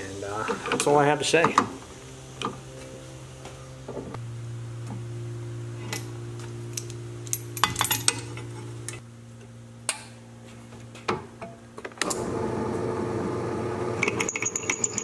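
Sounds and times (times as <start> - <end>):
steady low hum: 0.0 - 14.0
metal clinks and clatter: 6.7 - 8.8, 14.1 - 15.0.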